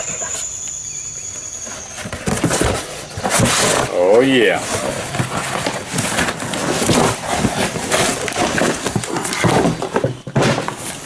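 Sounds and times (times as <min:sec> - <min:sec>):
cardboard packaging rustling: 0:01.4 - 0:11.0
box knocks: 0:06.2 - 0:10.9.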